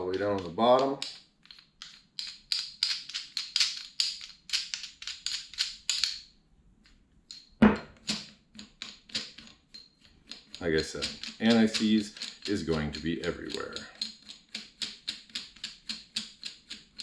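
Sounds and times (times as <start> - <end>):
loud metal thunk: 7.6 - 7.9.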